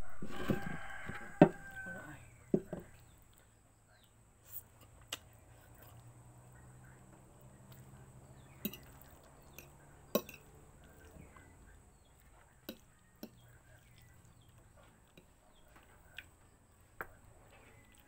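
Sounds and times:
faint bird chirps: 5.2 - 18.0
fork clinking on ceramic plate: 8.6 - 10.5.

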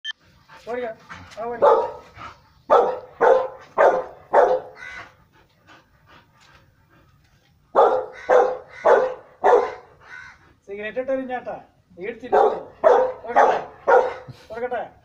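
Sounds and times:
dog barking: 1.6 - 2.1, 2.7 - 5.0, 7.8 - 10.3, 12.3 - 14.3.

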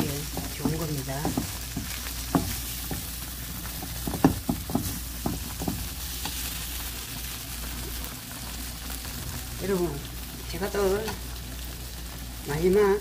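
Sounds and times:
fish sizzling in a hot pan: 0.0 - 13.0.

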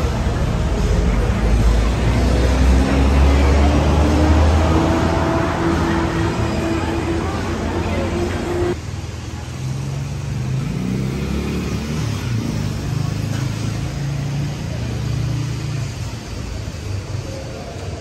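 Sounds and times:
vehicle engine droning: 0.0 - 18.0.

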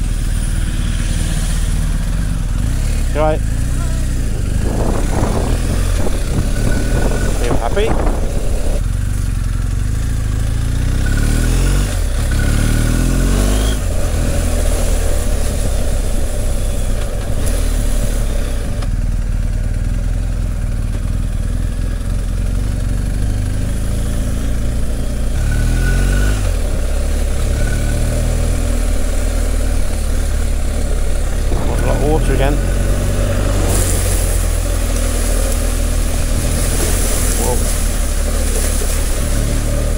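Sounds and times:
motorcycle engine accelerating: 0.0 - 39.9
wind rumble on microphone: 3.5 - 9.7, 25.6 - 39.9.

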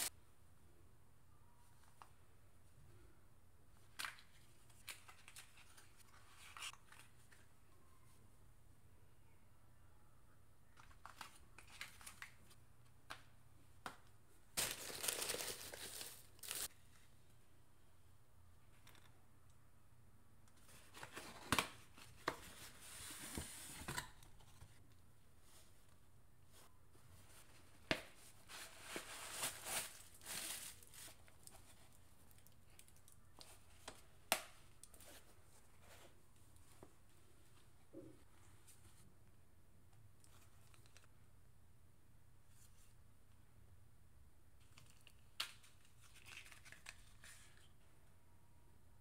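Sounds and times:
crinkled paper rustling: 14.6 - 16.7, 27.3 - 34.0, 44.6 - 47.7.

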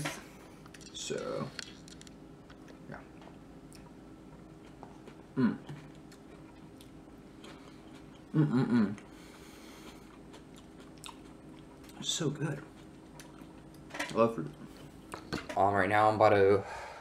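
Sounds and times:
person chewing: 1.6 - 13.9.

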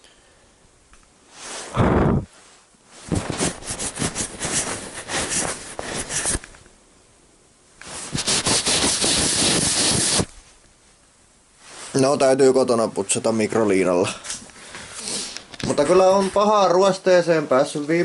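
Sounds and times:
rubbing on camera housing: 3.0 - 6.5, 7.8 - 10.3.

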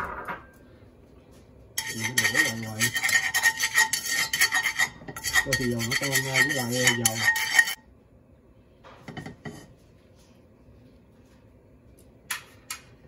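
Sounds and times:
chopsticks scraping metal saucepan: 1.8 - 7.8.

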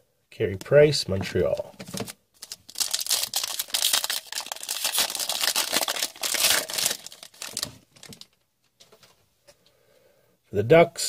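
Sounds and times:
foil wrapper tearing and crinkling: 2.0 - 8.4.

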